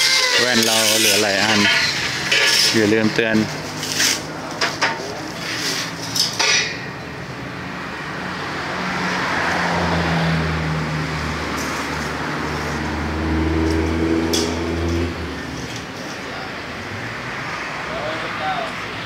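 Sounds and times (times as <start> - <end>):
metal tubes clinking: 0.0 - 7.0
vehicle engine and road noise: 0.0 - 19.0.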